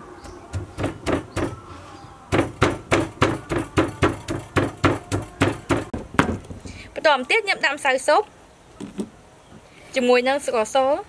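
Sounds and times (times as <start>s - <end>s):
pestle pounding in a mortar: 0.2s - 1.6s, 2.3s - 6.4s.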